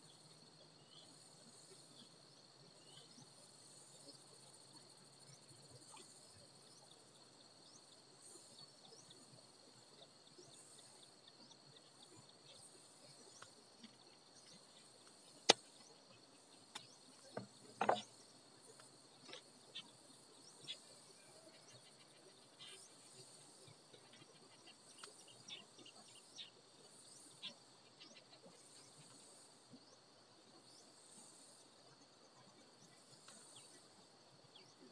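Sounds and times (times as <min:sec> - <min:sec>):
high insect chorus: 0:00.0 - 0:34.9
faint clicks: 0:13.3 - 0:15.9, 0:16.6 - 0:19.5.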